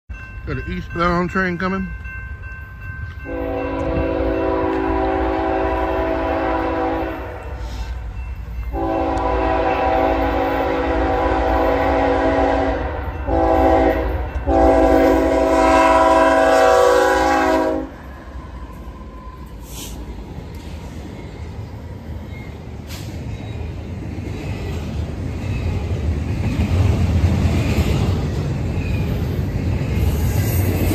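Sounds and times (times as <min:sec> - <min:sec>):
low rumble of approaching train: 0:00.1 - 0:30.9
locomotive air horn blasts: 0:03.3 - 0:07.9, 0:08.7 - 0:18.0.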